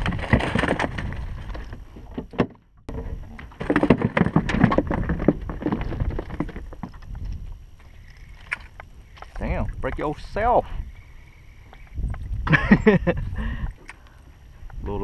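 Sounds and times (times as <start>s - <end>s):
knocks and rattles: 0.0s - 7.5s
wind: 0.0s - 15.0s.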